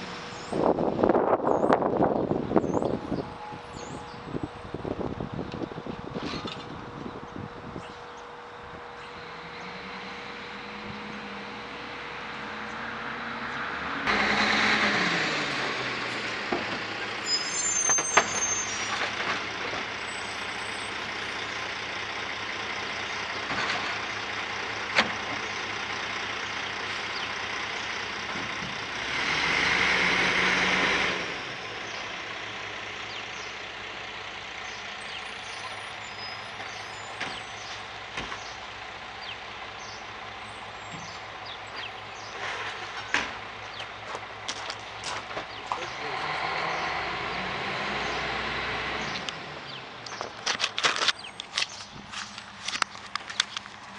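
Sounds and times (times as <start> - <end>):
truck engine running: 0.0 - 53.9.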